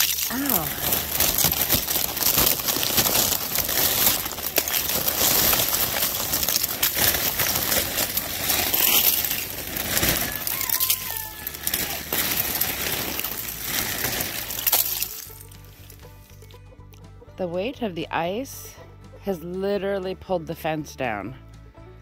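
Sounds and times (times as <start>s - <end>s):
icy plastic tarp crackling: 0.0s - 16.2s.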